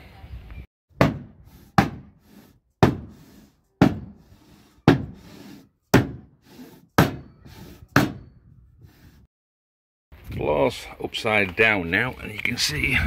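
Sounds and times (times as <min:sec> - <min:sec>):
hammer knocking on metal panel: 0:01.0 - 0:02.1, 0:02.8 - 0:03.1, 0:03.8 - 0:04.2, 0:04.9 - 0:05.2, 0:05.9 - 0:06.3, 0:08.0 - 0:08.2.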